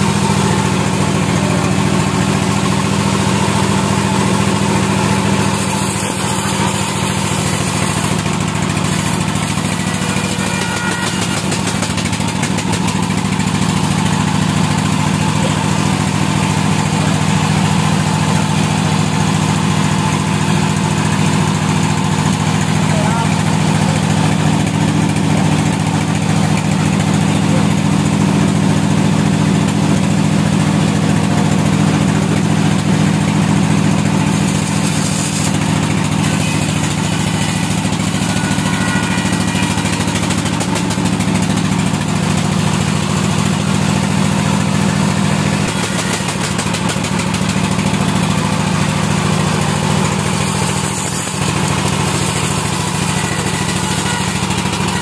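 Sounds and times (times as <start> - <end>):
sawmill motor humming: 0.0 - 55.0
saw blade hissing through log: 5.2 - 12.2, 34.0 - 41.5, 50.2 - 55.0.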